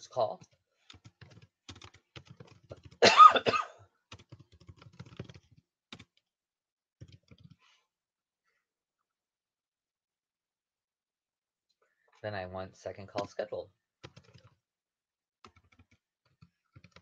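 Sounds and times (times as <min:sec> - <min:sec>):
computer keyboard typing: 0:00.4 - 0:03.0, 0:04.1 - 0:06.2, 0:07.0 - 0:07.6, 0:13.1 - 0:14.6, 0:15.4 - 0:17.0
person coughing: 0:03.0 - 0:03.8.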